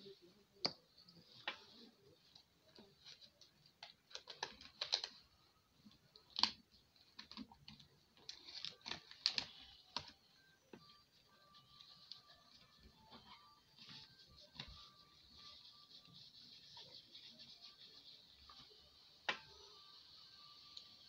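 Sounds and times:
balloon and plastic bottle crinkling: 0:08.2 - 0:10.2.

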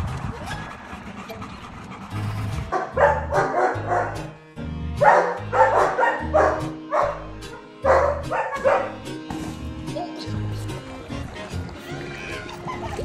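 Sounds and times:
dogs barking: 0:00.3 - 0:04.4, 0:05.0 - 0:09.2
background music with bass line: 0:02.1 - 0:13.0.

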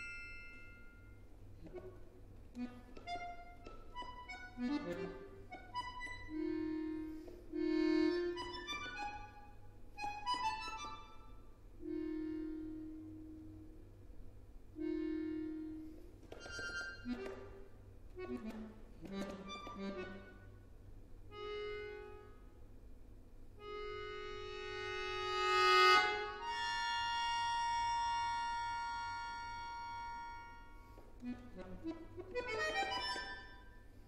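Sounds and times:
solo accordion playing: 0:00.0 - 0:22.9, 0:23.5 - 0:34.0.

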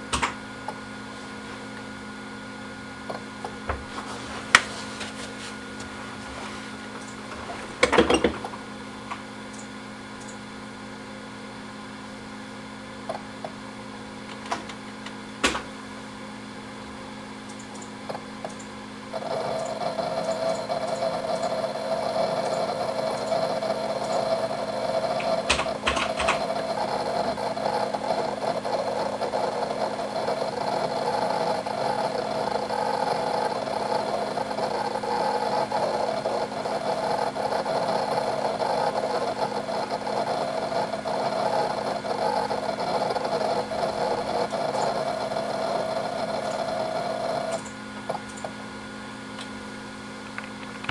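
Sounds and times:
hard drive seek clicks: 0:00.0 - 0:50.9
hard drives humming: 0:00.0 - 0:50.9
rapid head seek chatter: 0:19.1 - 0:48.4.

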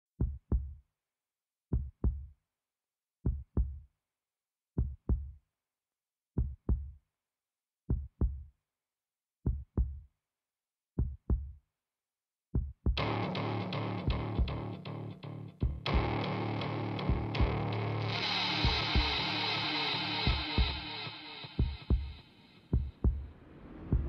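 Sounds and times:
heartbeat thumps: 0:00.2 - 0:00.7, 0:15.6 - 0:16.2, 0:17.0 - 0:17.6, 0:20.3 - 0:20.8, 0:21.6 - 0:24.0.

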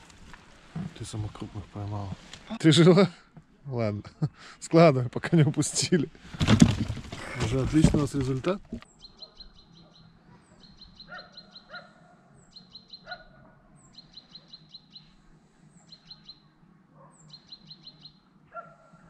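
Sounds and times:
songbird singing: 0:07.2 - 0:19.0.

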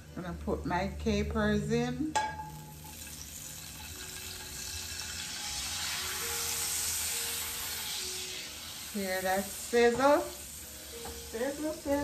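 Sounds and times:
capers sizzling in butter: 0:02.4 - 0:12.0.

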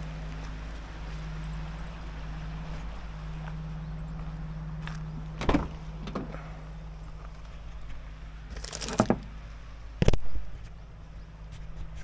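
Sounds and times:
truck engine idling: 0:00.0 - 0:10.0
truck door clicks and clunk: 0:05.4 - 0:06.4.

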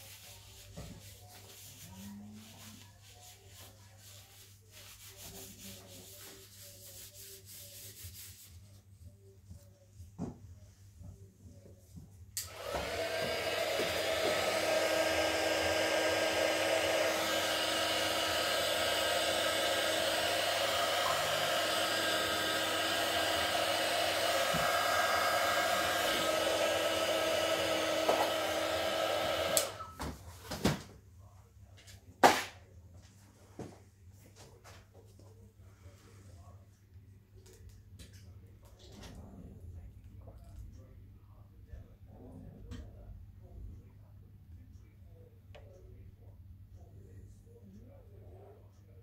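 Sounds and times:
heat tool blowing: 0:12.4 - 0:29.9.

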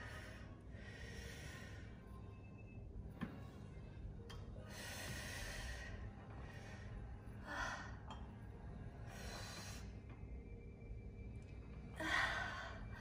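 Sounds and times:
woman breathing: 0:00.0 - 0:02.2, 0:04.6 - 0:08.4, 0:09.0 - 0:10.1, 0:11.9 - 0:13.0.

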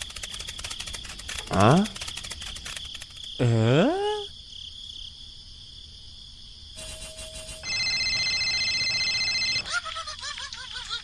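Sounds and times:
crickets chirping: 0:00.0 - 0:10.2
steady beep-like tone: 0:06.8 - 0:09.6.

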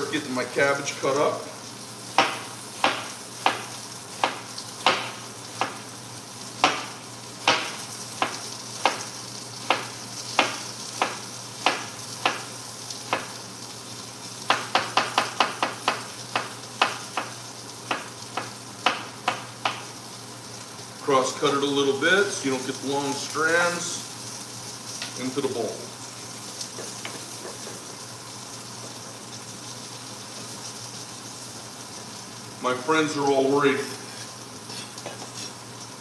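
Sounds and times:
peppers sizzling in hot oil: 0:00.0 - 0:36.0
knife chopping cabbage on board: 0:02.2 - 0:05.8, 0:06.6 - 0:12.5.

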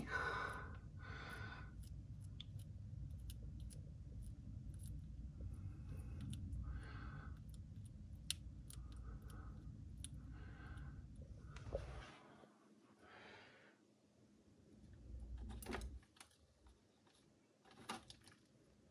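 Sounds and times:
lizard chewing insect: 0:00.0 - 0:11.2.

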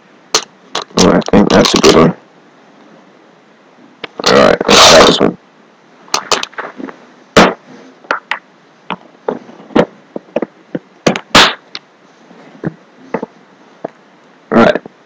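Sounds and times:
sharp clicks and knocks: 0:00.3 - 0:02.0, 0:06.1 - 0:06.7, 0:07.4 - 0:11.9
loud thumps: 0:06.2 - 0:11.8.

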